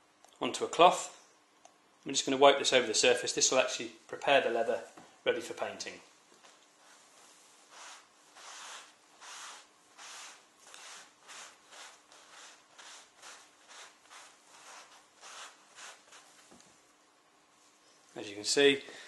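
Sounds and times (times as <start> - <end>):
cloth swishing on leather: 6.8 - 16.6.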